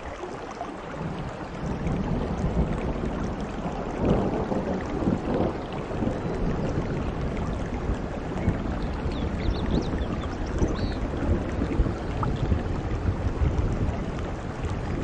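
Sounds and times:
heavy rain on foliage: 0.0 - 15.0.

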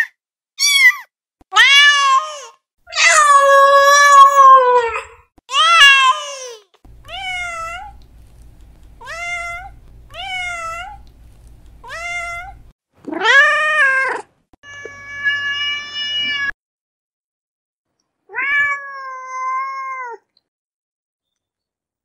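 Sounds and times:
cat meowing: 7.0 - 8.2, 9.0 - 11.1, 11.7 - 16.5, 18.3 - 20.2.

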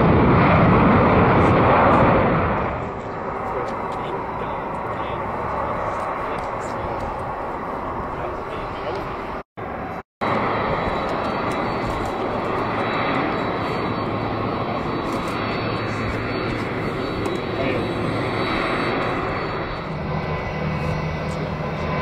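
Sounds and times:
jet engines rushing: 0.0 - 22.0.

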